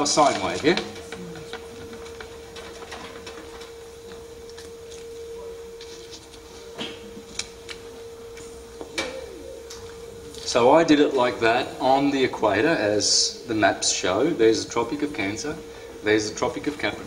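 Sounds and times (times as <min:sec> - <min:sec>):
electrical hum: 0:00.0 - 0:17.0.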